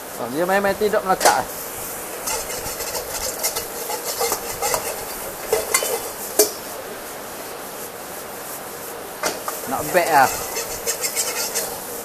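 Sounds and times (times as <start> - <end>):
soft steady rustle: 0.0 - 12.0
spatula scraping wok: 0.8 - 7.0, 9.2 - 12.0.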